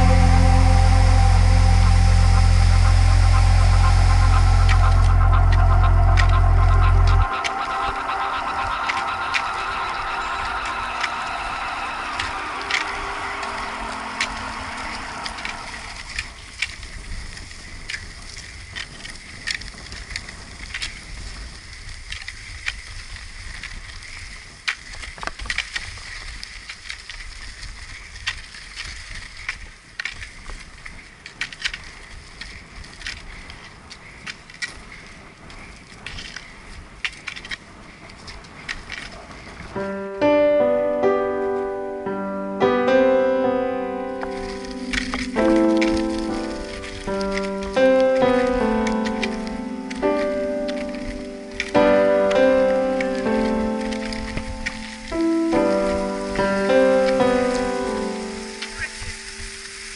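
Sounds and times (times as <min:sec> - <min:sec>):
low rumble: 0:00.0 - 0:22.0, 0:39.0 - 0:59.9
skates rolling over gravel: 0:00.0 - 0:40.0, 0:43.9 - 0:59.9
pole tips clicking on stones: 0:14.2 - 0:39.7, 0:44.3 - 0:59.9.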